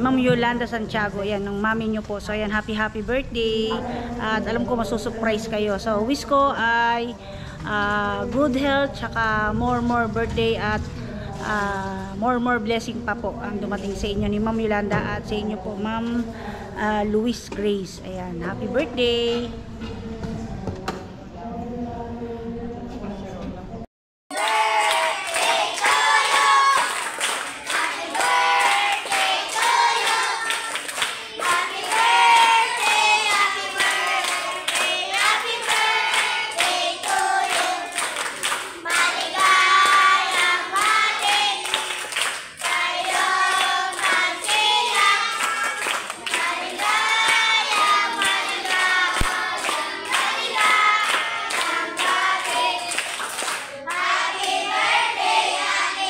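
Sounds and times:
children clapping: 24.3 - 54.8
children singing: 24.4 - 38.2, 38.8 - 42.0, 42.6 - 53.0.

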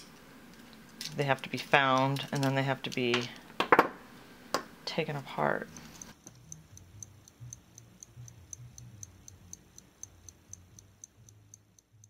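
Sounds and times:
low background hum: 0.0 - 12.0
mechanical clock ticking: 5.6 - 12.0.

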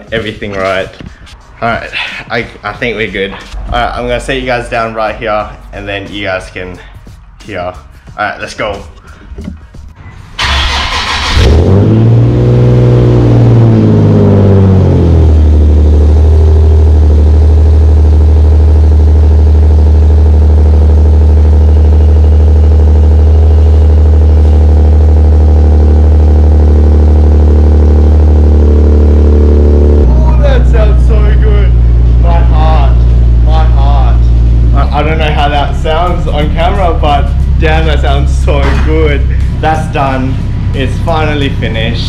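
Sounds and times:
car engine revving and idling: 10.0 - 42.0.

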